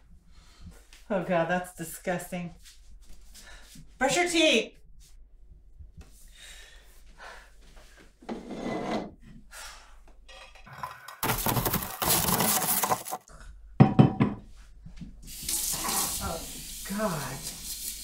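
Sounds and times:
rubbing and scraping: 8.2s - 9.2s, 10.7s - 13.3s.

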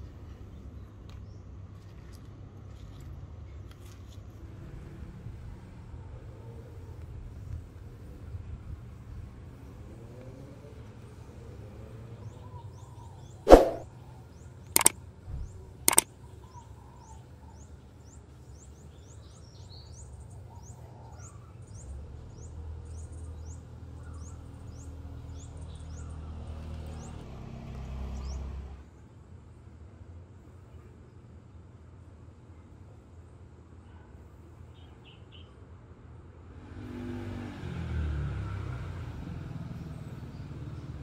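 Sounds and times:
small bird chirping: 14.4s - 26.2s.

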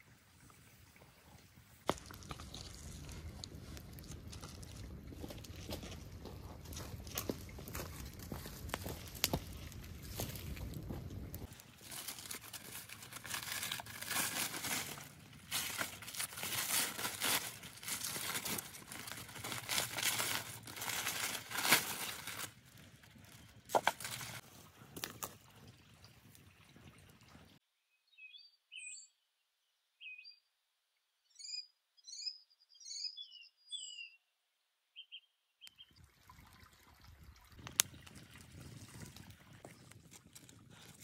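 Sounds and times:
aluminium foil crinkling: 11.4s - 24.4s
bird chirps: 27.8s - 30.5s, 31.2s - 34.3s, 34.9s - 36.0s.

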